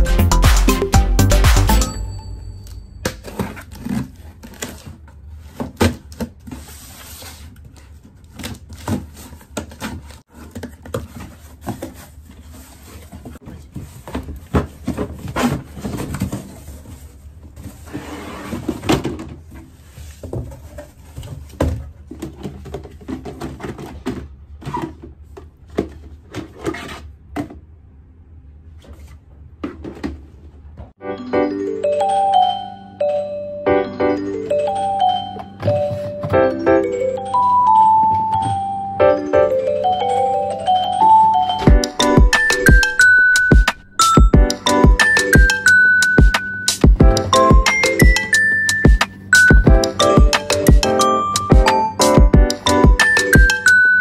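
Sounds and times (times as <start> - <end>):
cardboard rustling and scraping: 3.2 - 27.6.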